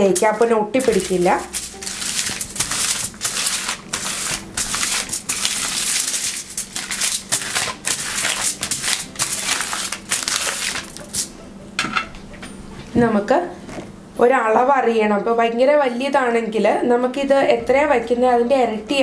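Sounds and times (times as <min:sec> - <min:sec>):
foil crinkling and rustling: 0:00.2 - 0:11.3.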